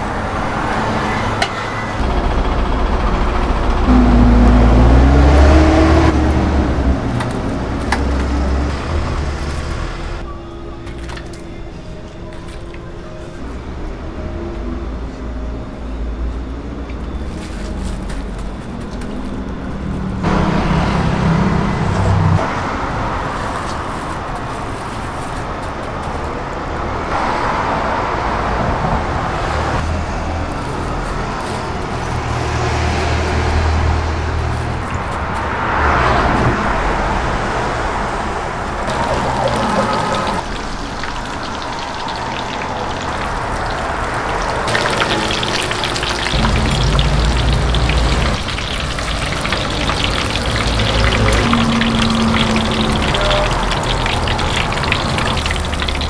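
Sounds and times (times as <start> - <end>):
oil sizzling in frying pan: 38.9 - 56.0.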